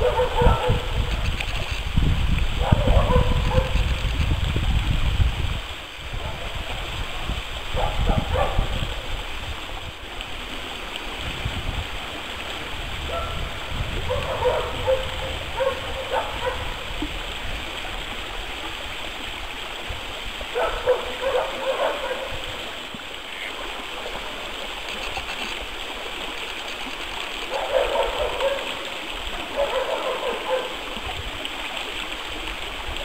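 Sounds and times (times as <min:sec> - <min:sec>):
stream flowing: 0:00.0 - 0:33.0
ducks quacking: 0:23.3 - 0:23.7.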